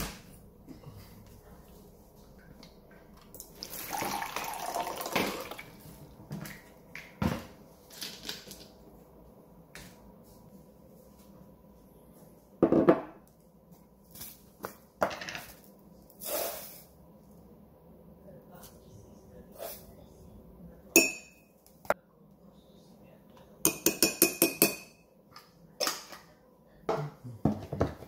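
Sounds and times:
mug knocking on countertop: 12.6s - 13.2s.

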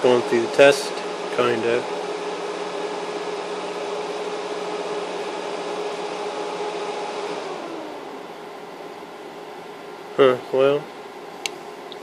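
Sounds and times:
cooling fan whirring: 0.0s - 12.0s.

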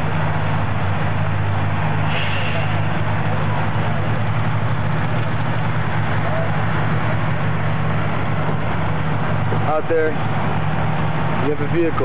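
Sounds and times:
diesel engine drone: 0.0s - 12.0s
brief hiss: 2.0s - 3.0s.

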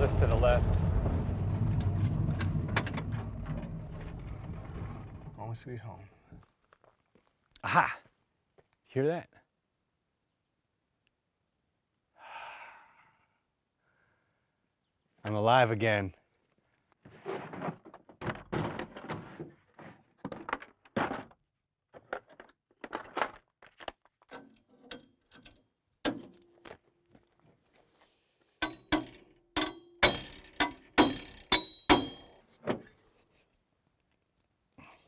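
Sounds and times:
metal tools clanking on metal: 28.6s - 33.0s.

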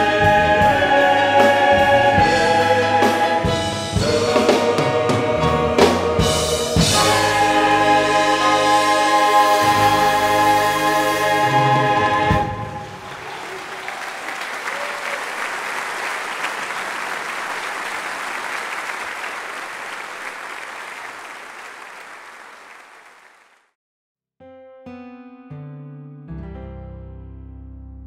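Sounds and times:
audience applauding: 12.8s - 23.7s.

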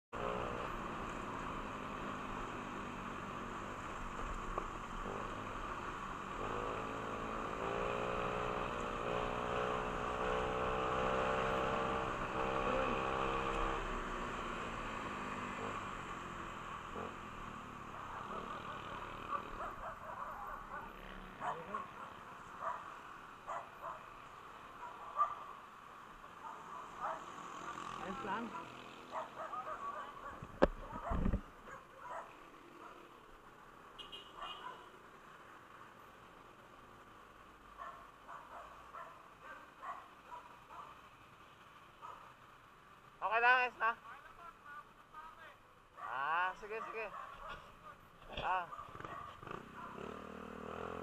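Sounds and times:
motorcycle engine running: 48.4s - 51.0s.

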